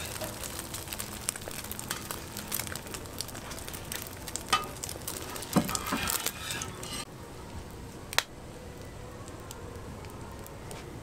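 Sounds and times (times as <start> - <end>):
food sizzling on griddle: 0.0 - 7.0.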